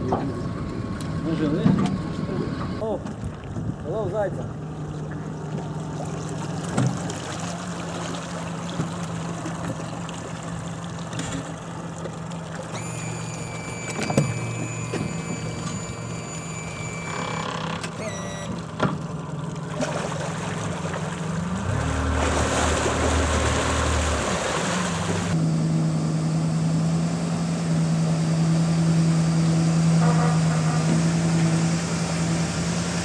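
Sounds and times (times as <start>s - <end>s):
outboard motor running: 0.0s - 33.0s
water churning: 2.8s - 25.4s.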